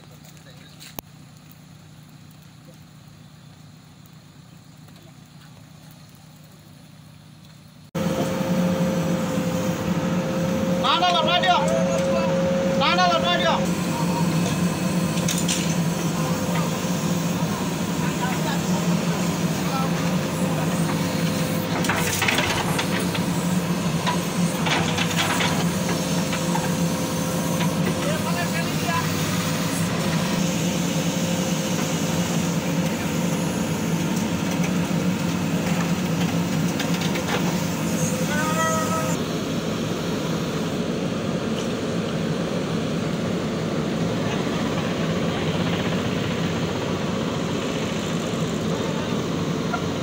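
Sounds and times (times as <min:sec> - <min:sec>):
diesel engine droning: 0:00.0 - 0:50.0
hydraulic hissing and clattering: 0:13.3 - 0:39.2.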